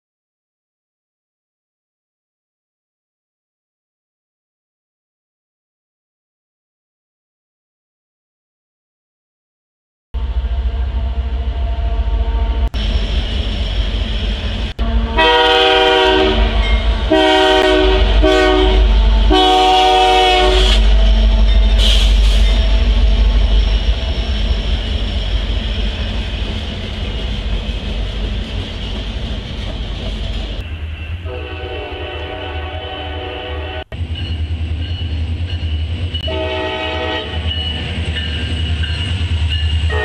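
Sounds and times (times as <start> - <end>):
locomotive rumble: 10.2 - 40.0
train air horn blasts: 14.8 - 22.6, 30.6 - 34.0, 36.2 - 37.6.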